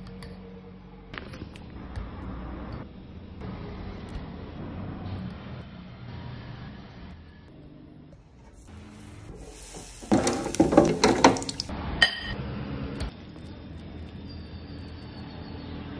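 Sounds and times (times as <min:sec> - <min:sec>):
crockery clinking: 0:10.1 - 0:12.4.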